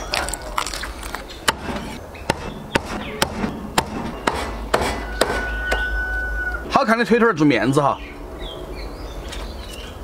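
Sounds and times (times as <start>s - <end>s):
cleaver chopping on wooden block: 1.5s - 5.8s.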